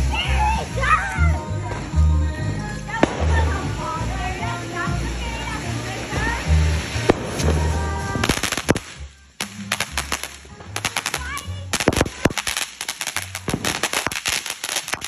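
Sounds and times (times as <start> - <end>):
firework fountain spraying sparks: 0.0 - 15.0
rapid crackle of sharp pops: 6.8 - 15.0.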